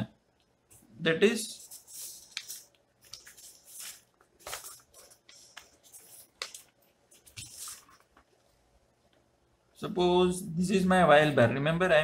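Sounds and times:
paper rustling on a desk: 1.5s - 8.5s.

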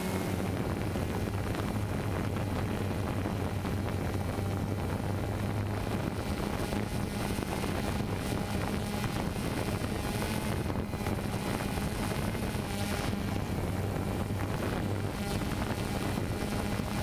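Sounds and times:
quadcopter hovering: 0.0s - 17.0s.

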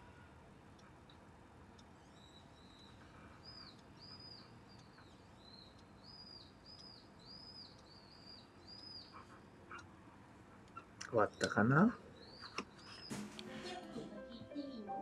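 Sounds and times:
faint high chirps: 1.8s - 9.9s.

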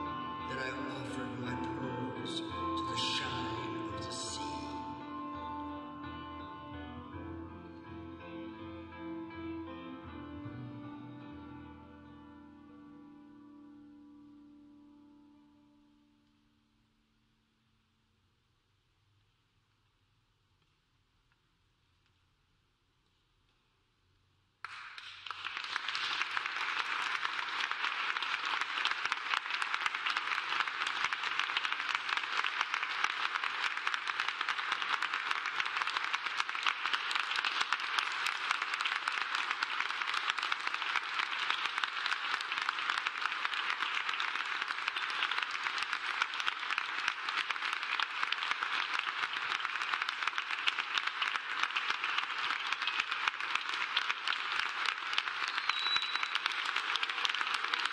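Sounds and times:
audience applauding: 24.6s - 57.9s.

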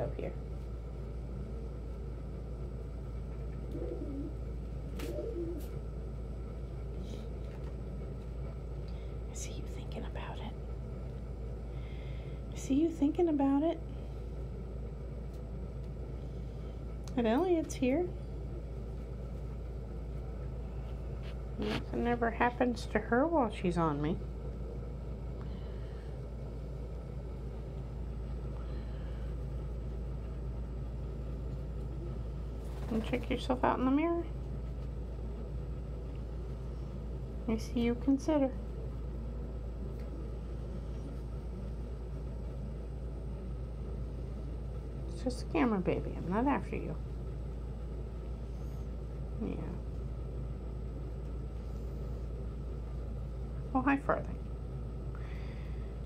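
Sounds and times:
low background rumble: 0.0s - 56.0s
steady low hum: 0.0s - 56.0s
pigeons cooing: 3.5s - 5.9s.

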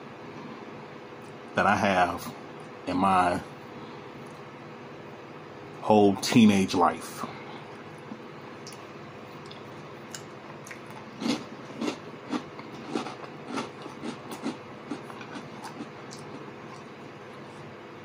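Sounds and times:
steady room hum: 0.0s - 18.0s
close-up chewing with mouth clicks: 7.8s - 17.7s.

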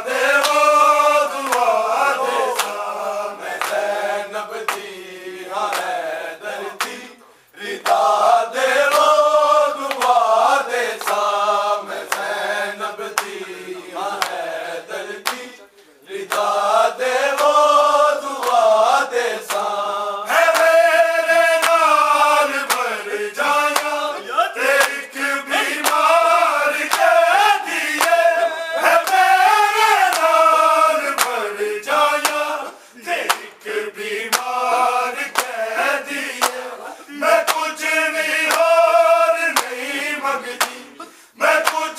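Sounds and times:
men chanting a lament in unison: 0.0s - 41.9s
hands slapping chests: 0.3s - 3.9s, 4.6s - 4.9s, 5.7s - 6.1s, 6.8s - 7.1s, 7.8s - 8.2s, 8.8s - 9.2s, 9.8s - 10.2s, 11.0s - 11.4s, 12.0s - 12.4s, 13.1s - 13.4s, 14.1s - 14.5s, 15.2s - 15.5s, 16.2s - 16.6s, 18.4s - 18.6s, 19.4s - 19.8s, 20.4s - 31.5s, 32.1s - 32.5s, 33.2s - 33.7s, 34.3s - 35.6s, 36.3s - 36.7s, 37.4s - 38.8s, 39.5s - 39.8s, 40.5s - 40.9s, 41.5s - 41.9s.

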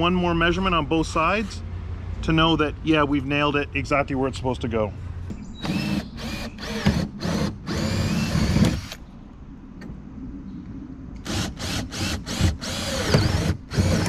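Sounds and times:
power drill boring aluminum: 5.6s - 9.0s, 11.2s - 14.0s.

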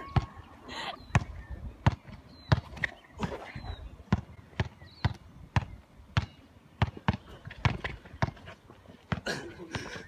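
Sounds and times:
basketball bouncing on court: 0.0s - 0.4s, 4.1s - 8.4s, 9.0s - 9.3s.

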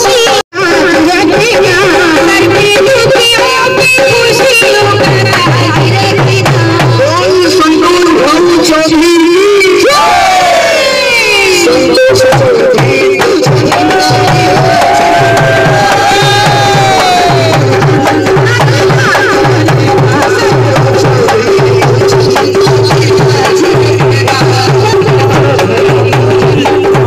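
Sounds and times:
barrel drums folk beat: 0.0s - 27.0s
person singing into microphone: 10.9s - 27.0s.

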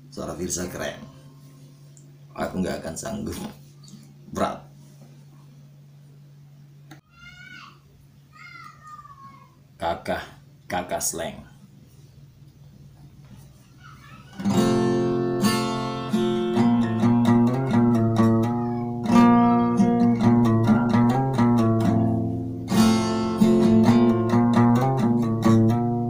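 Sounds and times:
acoustic guitar playing: 14.2s - 26.0s.

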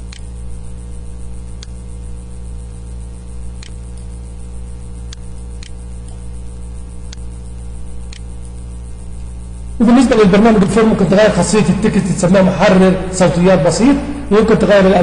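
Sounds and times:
electrical mains hum and hiss: 0.0s - 15.0s
computer mouse clicks: 0.1s - 0.3s, 3.6s - 4.2s, 5.1s - 6.3s, 7.1s - 7.3s, 8.1s - 8.3s.

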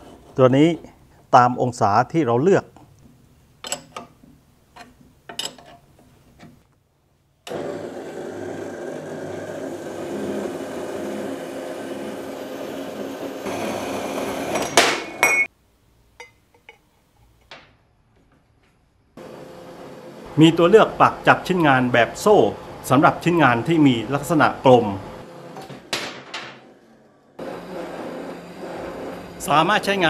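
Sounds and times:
band saw cutting steel pipe: 7.5s - 15.2s, 27.4s - 30.0s.

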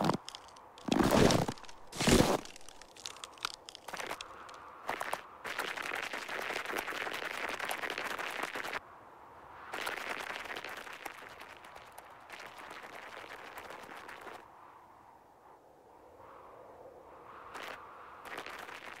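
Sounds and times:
tiny footsteps crunching on snow: 0.0s - 5.6s.

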